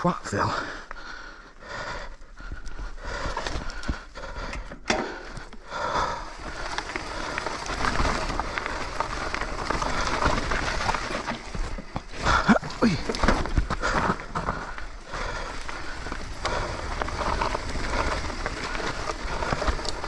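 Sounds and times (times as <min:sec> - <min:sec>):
bike rattling and clicking: 0:00.6 - 0:20.0
tyres crunching over dirt: 0:05.2 - 0:20.0.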